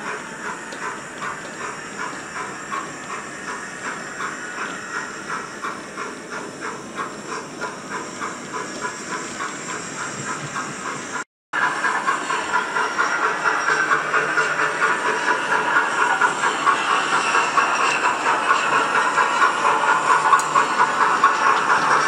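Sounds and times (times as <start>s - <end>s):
continuous steam hiss: 0.0s - 22.0s
model steam locomotive chuffs: 0.0s - 22.0s.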